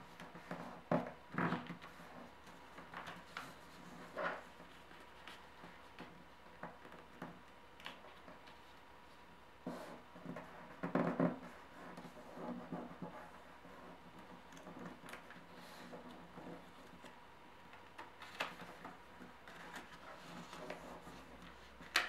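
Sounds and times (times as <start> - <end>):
paper rustling and creasing: 1.4 - 6.1, 17.9 - 22.0.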